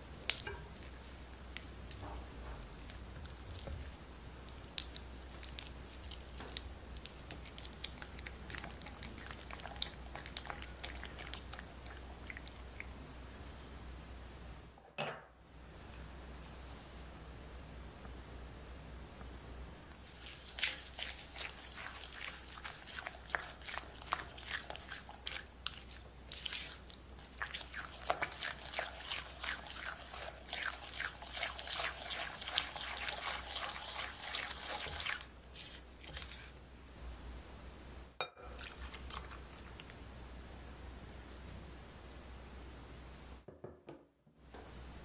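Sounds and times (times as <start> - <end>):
spatula scraping sugar mixture: 20.0 - 36.6.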